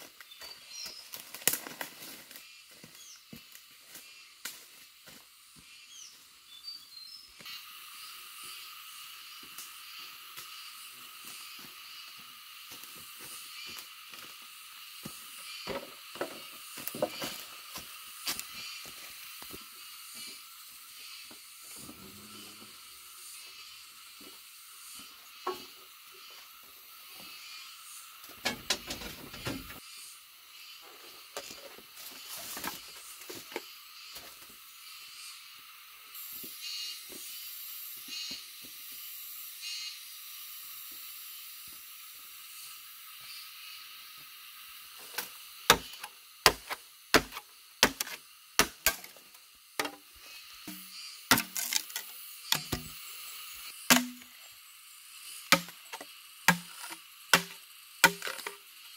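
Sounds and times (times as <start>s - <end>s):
steady high hiss: 0.0s - 58.9s
billhook chopping bamboo: 45.2s - 49.2s, 49.8s - 50.0s, 50.7s - 53.0s, 53.9s - 54.3s, 55.5s - 58.6s.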